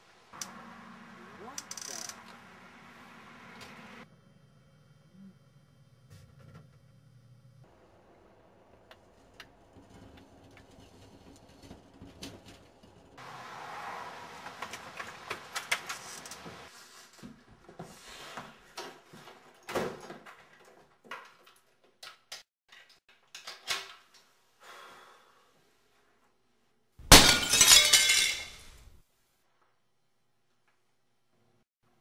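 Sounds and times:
loud smashing crash: 27.1s - 28.7s.

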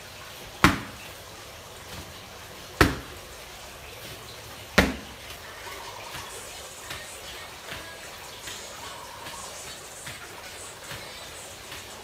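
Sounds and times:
kicks smacking a padded shield: 0.6s - 1.0s, 2.8s - 3.2s, 4.8s - 5.2s.

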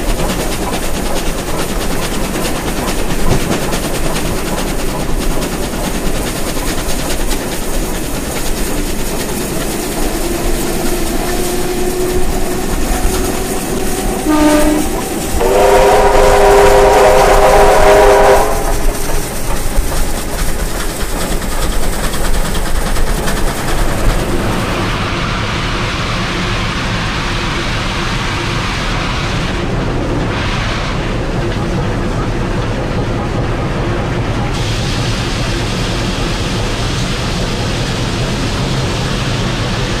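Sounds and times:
train rumble and wheel clickety-clack: 0.0s - 40.0s
train whistle: 10.9s - 19.2s.

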